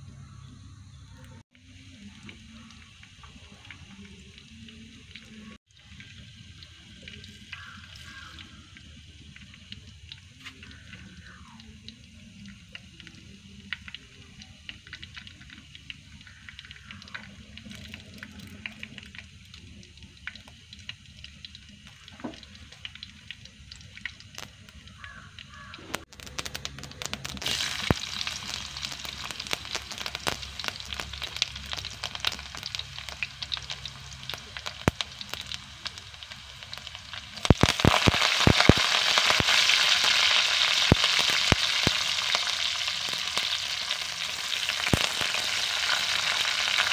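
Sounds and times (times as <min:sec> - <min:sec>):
oil crackling and sizzling: 0:00.3 - 0:46.9
ingredients dropped into hot oil: 0:20.4 - 0:46.9.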